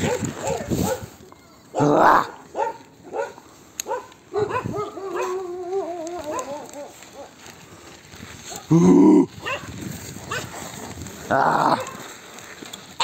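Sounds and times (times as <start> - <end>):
dogs barking: 0.0 - 1.1, 1.8 - 7.4, 9.4 - 9.7, 10.3 - 10.6, 11.6 - 12.1
dog wavering howl: 4.4 - 7.3.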